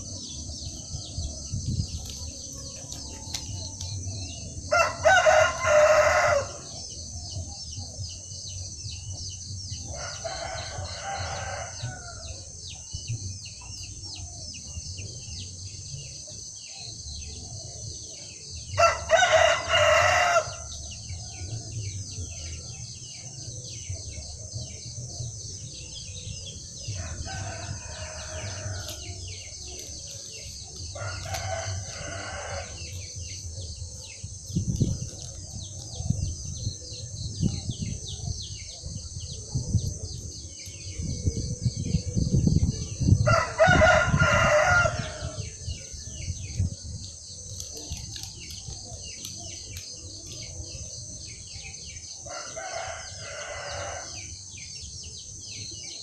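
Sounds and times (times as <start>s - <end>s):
rooster crowing: 4.7s - 6.7s, 9.9s - 12.4s, 18.8s - 20.7s, 27.0s - 29.6s, 30.9s - 33.1s, 43.2s - 45.6s, 52.3s - 54.3s.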